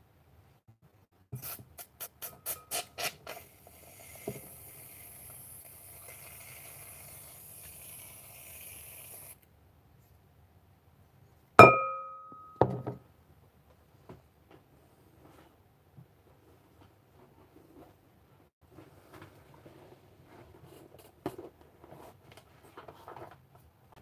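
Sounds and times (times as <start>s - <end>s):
glass bowl knocked ringing: 11.6s - 12.9s.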